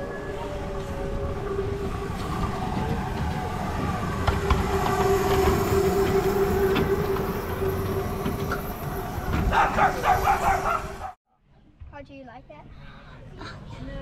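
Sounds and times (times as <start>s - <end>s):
miniature train rumbling past: 0.0s - 11.2s.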